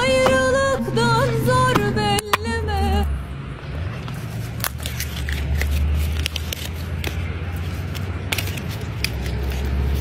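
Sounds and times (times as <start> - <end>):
steady low rumble: 0.0 - 3.8.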